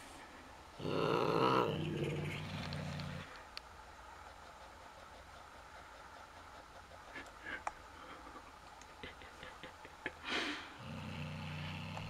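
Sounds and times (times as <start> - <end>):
cat growling: 0.8 - 3.3, 10.7 - 12.0.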